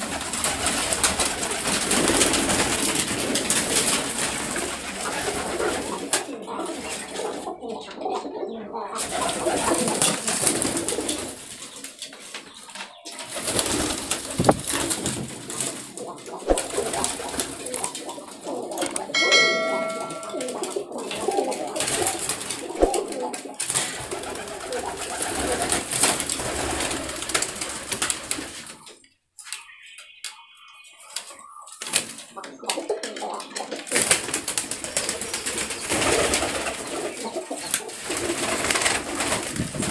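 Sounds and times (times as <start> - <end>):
pigeons cooing: 0.0 - 29.0, 29.6 - 39.9
short ringing chime: 19.2 - 20.7.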